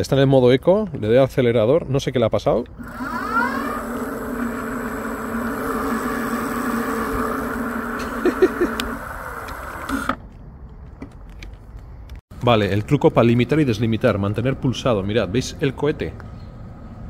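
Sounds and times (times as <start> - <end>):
electric bike motor whining: 2.7 - 10.2.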